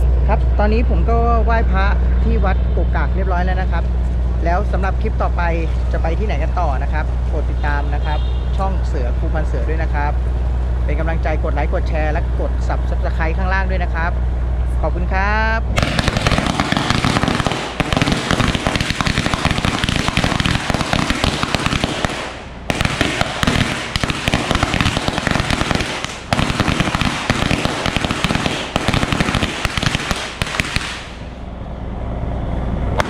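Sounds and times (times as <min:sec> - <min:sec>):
firecrackers going off: 0:15.8 - 0:31.4.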